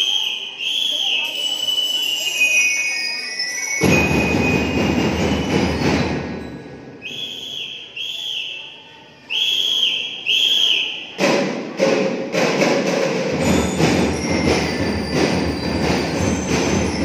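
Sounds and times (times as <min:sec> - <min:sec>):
whistle blasts: 0:00.0 - 0:06.1, 0:06.9 - 0:11.2.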